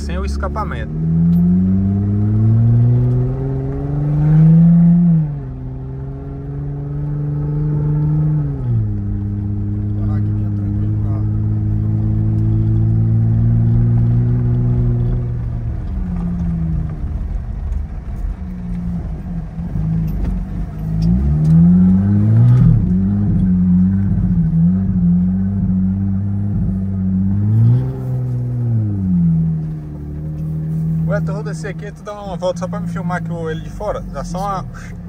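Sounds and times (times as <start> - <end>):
loud car engine without exhaust: 0.0 - 35.0.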